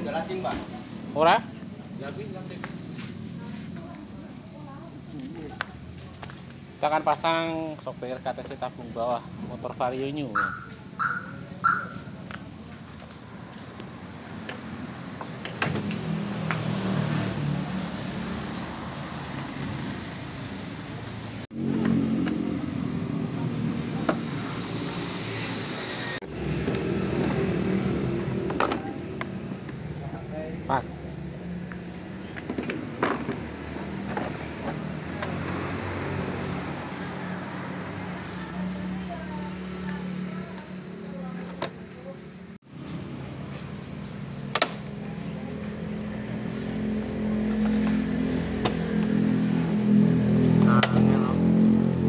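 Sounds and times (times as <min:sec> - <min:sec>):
vehicle engine passing by: 0:13.3 - 0:52.0.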